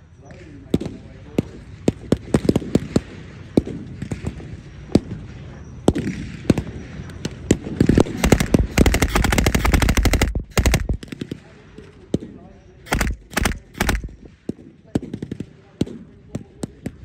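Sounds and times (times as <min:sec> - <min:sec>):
blank gunshots: 0:00.7 - 0:05.1, 0:05.9 - 0:17.0
rapid machine-gun burst: 0:07.5 - 0:11.4, 0:12.9 - 0:14.5.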